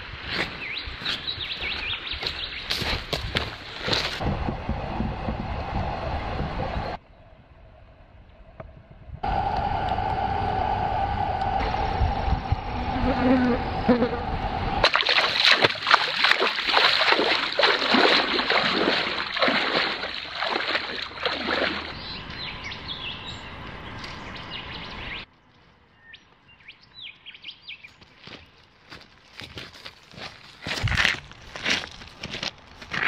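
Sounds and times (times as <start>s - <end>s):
footsteps on dry ground: 0.0s - 5.4s, 27.7s - 33.0s
feet splashing through shallow water: 0.2s - 4.2s, 14.8s - 23.0s
bird chirps: 0.6s - 3.0s, 21.8s - 25.3s, 25.9s - 28.0s
steady hum: 9.2s - 15.0s.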